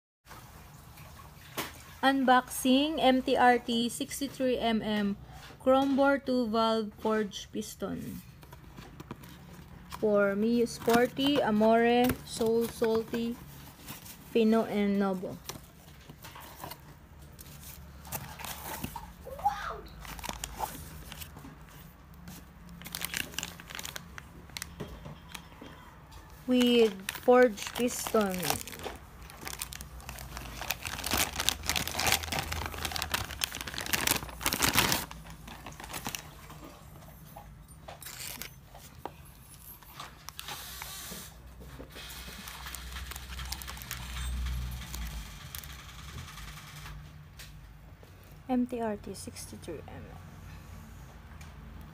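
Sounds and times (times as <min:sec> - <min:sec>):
packaging crinkling and rustling: 0:08.4 - 0:14.4, 0:15.1 - 0:19.2, 0:20.0 - 0:25.5, 0:26.3 - 0:36.8, 0:38.0 - 0:41.2, 0:41.9 - 0:46.1.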